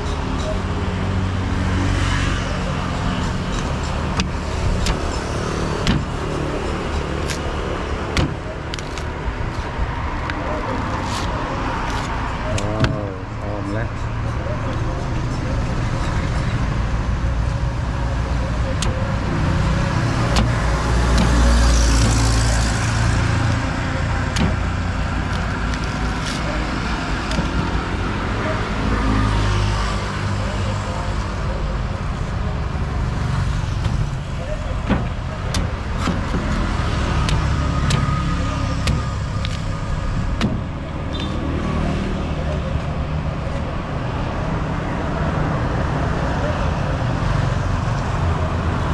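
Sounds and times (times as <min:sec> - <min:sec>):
motor vehicle rumble: 0:00.0 - 0:48.9
cleaver chopping on wooden block: 0:08.0 - 0:08.5, 0:20.0 - 0:22.3.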